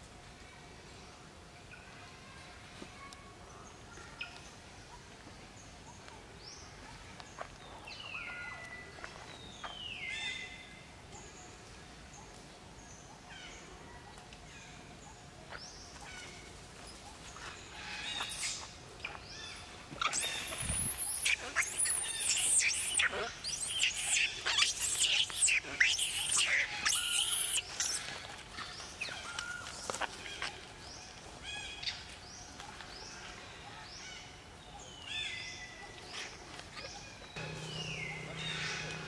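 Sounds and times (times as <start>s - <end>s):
short falling monkey calls: 20.0s - 28.0s
monkeys screaming: 20.0s - 28.1s, 37.4s - 39.0s.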